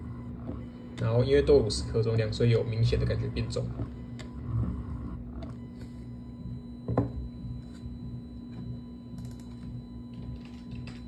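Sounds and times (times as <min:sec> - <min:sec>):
small motor humming: 0:00.0 - 0:11.0.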